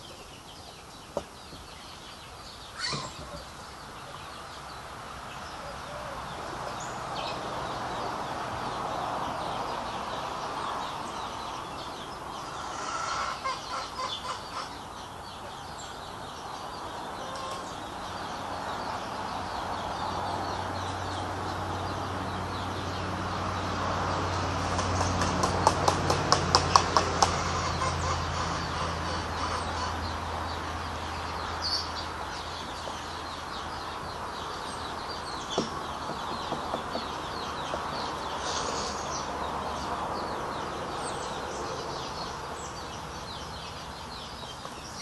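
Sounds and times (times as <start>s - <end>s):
chickens clucking: 12.4s - 15.7s, 16.9s - 17.9s, 26.8s - 30.2s
knock: 35.6s - 37.9s.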